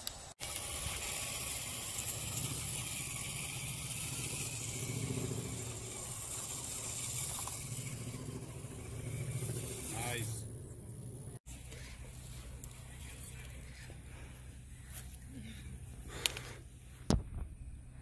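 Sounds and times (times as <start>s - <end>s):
rc truck motor whirring: 0.0s - 12.6s.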